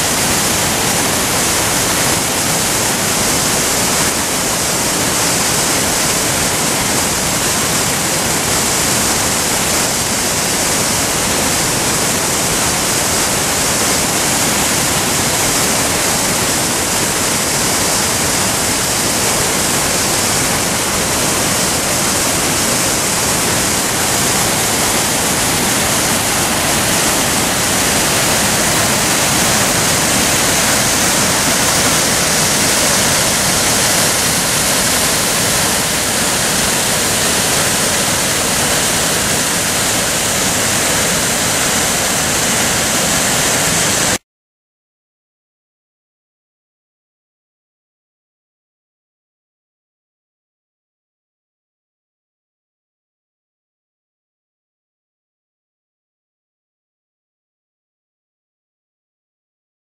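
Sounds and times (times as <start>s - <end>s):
waterfall roaring: 0.0s - 44.2s.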